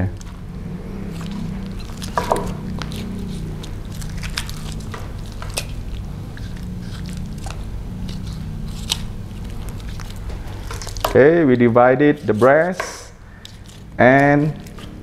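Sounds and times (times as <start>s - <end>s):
wet squishing of raw meat: 0.2s - 11.3s.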